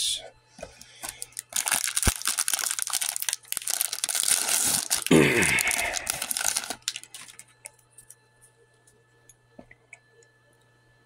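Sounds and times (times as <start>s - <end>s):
foil wrapper crinkling and tearing: 1.0s - 7.5s.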